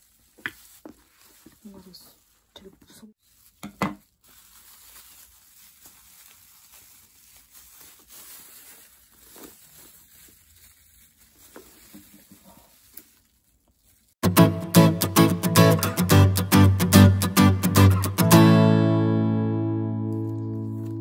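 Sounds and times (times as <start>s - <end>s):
plastic wrapping crinkling: 0.0s - 14.2s, 20.0s - 21.0s
acoustic guitar music: 14.2s - 21.0s.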